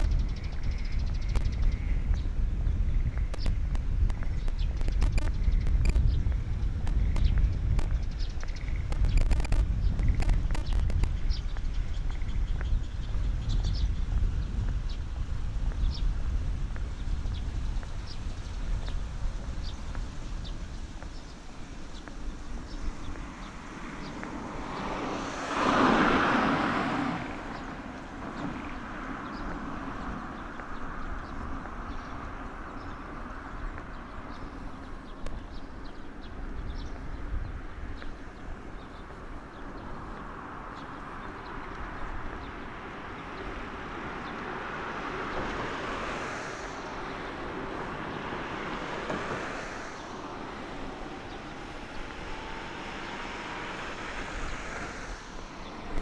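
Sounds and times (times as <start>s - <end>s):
outdoor background noise: 0.0s - 56.0s
vehicle passing quietly: 6.3s - 56.0s
car passing by: 15.2s - 56.0s.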